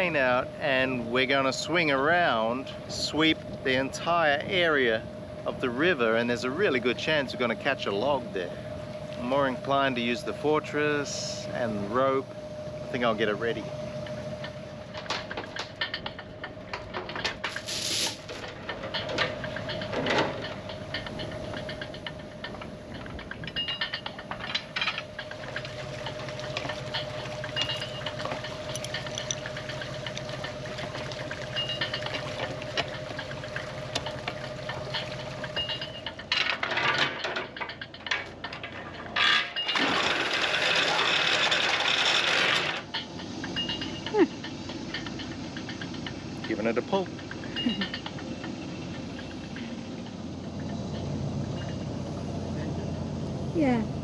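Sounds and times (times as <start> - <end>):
steady hum: 0.0 - 54.0
metallic clicks and clinks: 18.2 - 30.6, 31.5 - 52.0.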